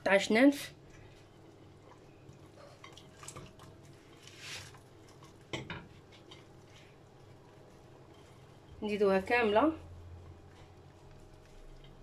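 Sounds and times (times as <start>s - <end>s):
onions rustling: 4.0s - 4.8s.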